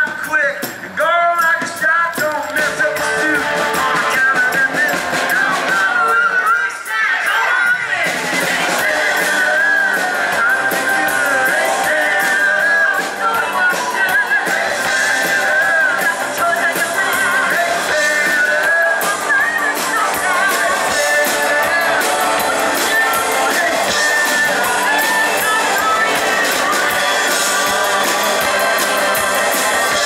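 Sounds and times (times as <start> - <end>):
drums: 0.0 - 30.0
electric guitars: 2.4 - 6.5, 7.9 - 30.0.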